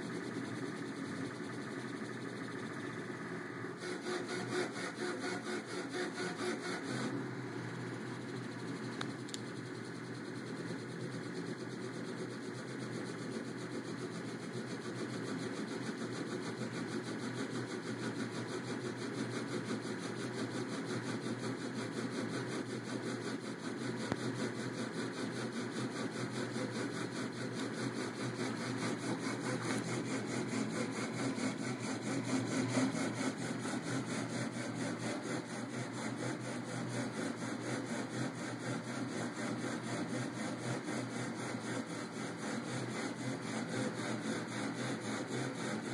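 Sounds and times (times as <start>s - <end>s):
stepper motors buzzing: 3.8s - 9.7s.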